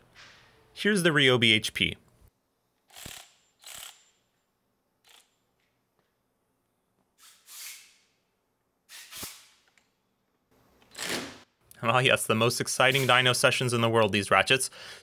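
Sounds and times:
cordless ratchet bursts: 2.9 - 4.3, 5.0 - 5.4.

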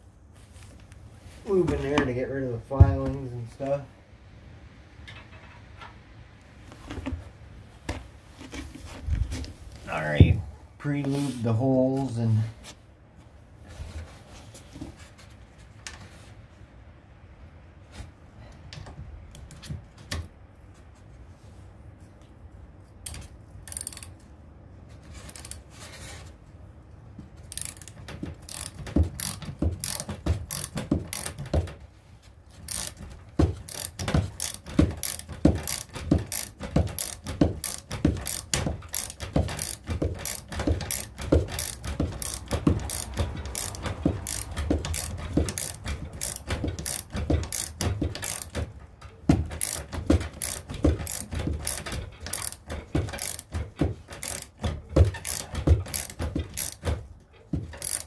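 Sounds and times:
socket ratchet wrench clicking: 23.1 - 24.1, 27.5 - 31.4, 32.7 - 33.0, 33.6 - 48.7, 49.6 - 53.6, 54.2 - 57.0, 57.8 - 58.0.

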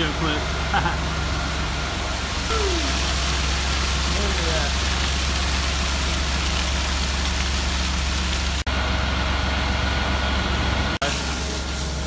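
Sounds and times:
truck engine humming: 0.0 - 12.0.

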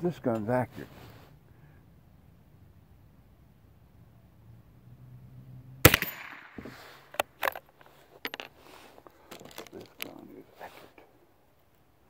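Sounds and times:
rifle shot: 5.8 - 6.6.

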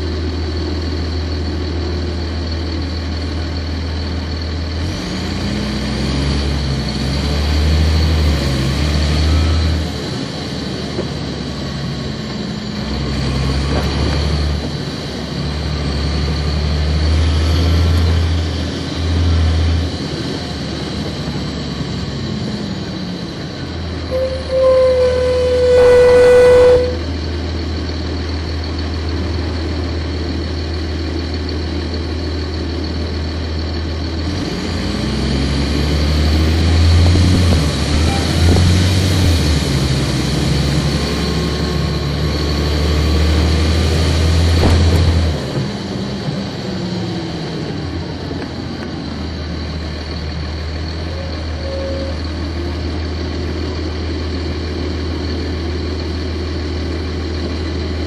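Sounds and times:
diesel bus engine: 0.0 - 58.0
steady electronic tone: 24.1 - 27.0.

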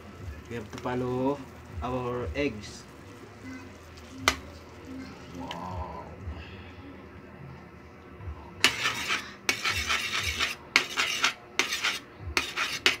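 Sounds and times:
metal utensil scraping frying pan: 8.6 - 13.0.

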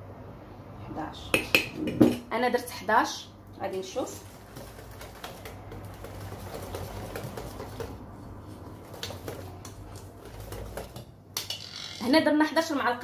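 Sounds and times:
whisk beating batter in metal bowl: 3.7 - 11.2.

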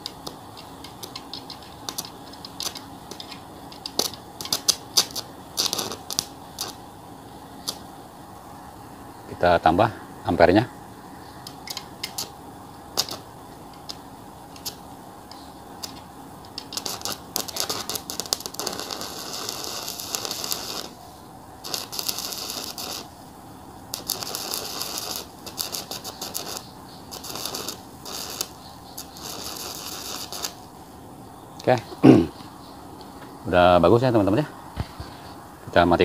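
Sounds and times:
scattered ticks: 0.0 - 6.7
welding arc crackling: 0.0 - 8.1, 11.4 - 31.0.

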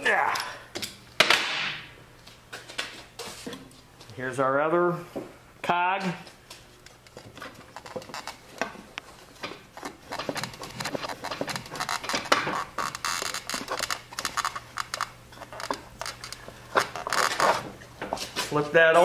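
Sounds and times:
scraping and rubbing: 6.6 - 18.6
knocks and clicks: 9.4 - 16.9.

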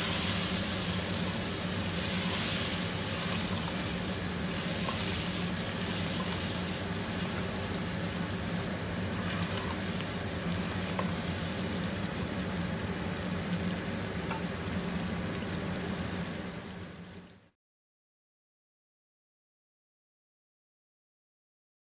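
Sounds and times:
wooden spatula stirring pot: 0.0 - 11.8
steady low hum: 0.0 - 16.8
food sizzling in oil: 0.0 - 17.5.

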